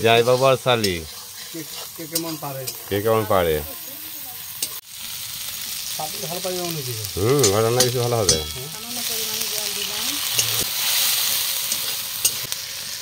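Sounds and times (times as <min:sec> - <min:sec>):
man talking: 0:00.0 - 0:03.7, 0:06.0 - 0:08.7
spatula scraping a pan: 0:00.0 - 0:04.8, 0:07.4 - 0:12.5
paste sizzling in hot oil: 0:00.0 - 0:13.0.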